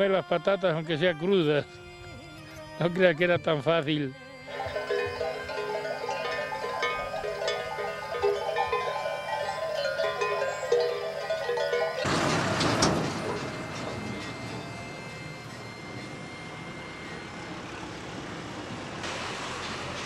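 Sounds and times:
sheep bleating: 0.0s - 12.1s
vehicle engine rushing: 4.5s - 20.0s.

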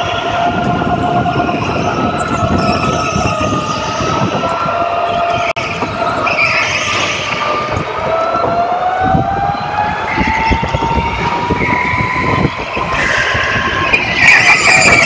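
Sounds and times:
go-kart motor whine: 0.0s - 15.0s
tyre squeals: 11.5s - 15.0s.

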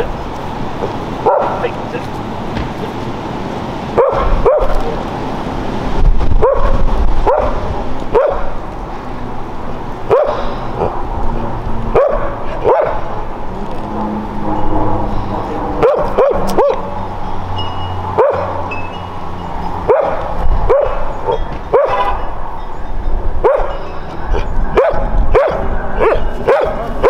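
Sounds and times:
dog barking: 1.2s - 1.6s, 4.0s - 5.0s, 6.4s - 8.6s, 10.1s - 10.9s, 11.9s - 13.1s, 15.8s - 16.9s, 18.2s - 18.7s, 19.8s - 22.3s, 23.4s - 27.0s.

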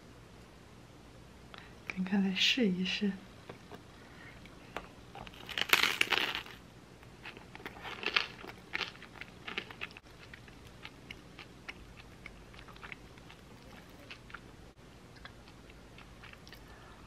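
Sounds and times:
bagel crust crackling: 5.2s - 14.5s.

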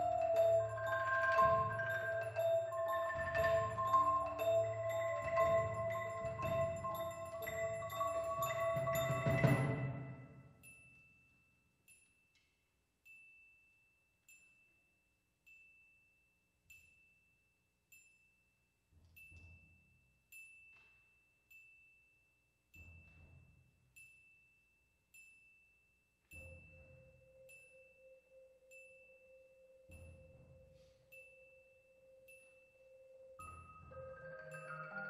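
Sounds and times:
ringing mallet note: 0.0s - 10.4s, 26.3s - 35.0s.

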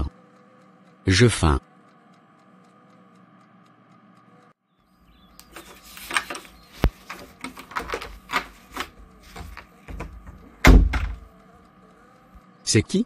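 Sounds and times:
irregular knocks and taps: 5.5s - 11.3s
heavy thump: 9.9s - 11.3s.

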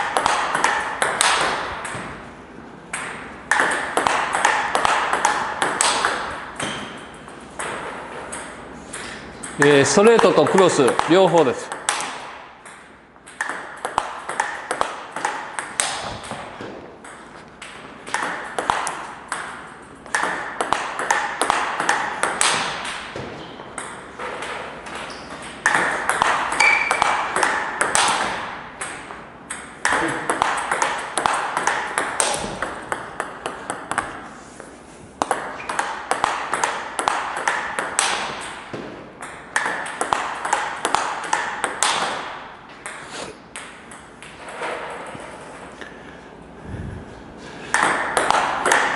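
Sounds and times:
table tennis ball clicking: 7.6s - 16.4s.

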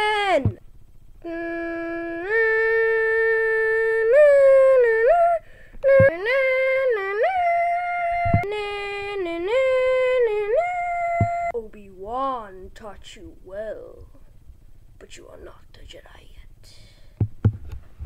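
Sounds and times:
person humming a slow melody: 1.2s - 11.6s.

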